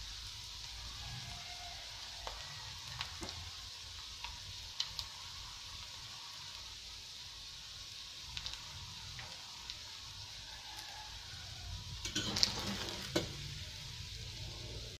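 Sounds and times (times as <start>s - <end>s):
meat sizzling in oil: 0.0s - 15.0s
metal spatula scraping pan: 12.0s - 13.3s.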